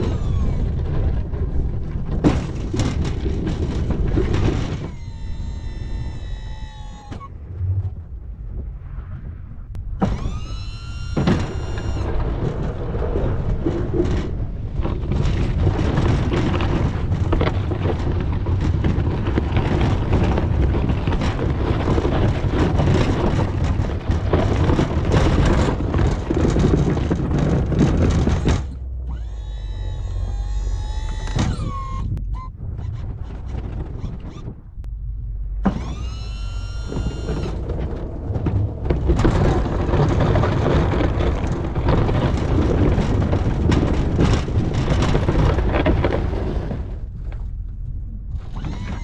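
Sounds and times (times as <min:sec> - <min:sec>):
plow rumbling and scraping snow: 0:00.0 - 0:49.0
hydraulic pump whining: 0:04.5 - 0:07.3, 0:10.0 - 0:12.2, 0:27.8 - 0:34.5, 0:35.6 - 0:38.3, 0:48.4 - 0:49.0.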